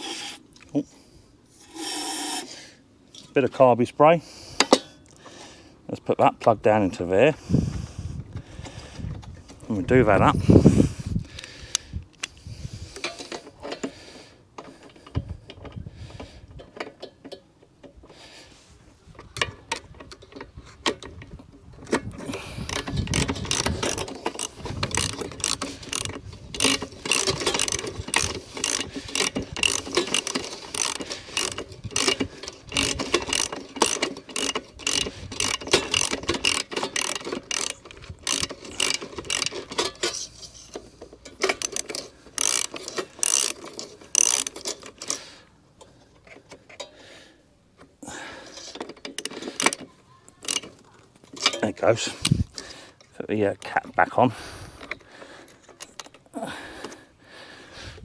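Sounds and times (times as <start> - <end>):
ratchet wrench clicking: 22.3 - 45.3, 50.4 - 50.7.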